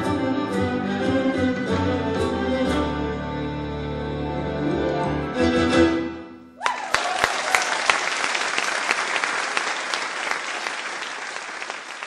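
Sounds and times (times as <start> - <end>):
audience applause: 6.6 - 12.0.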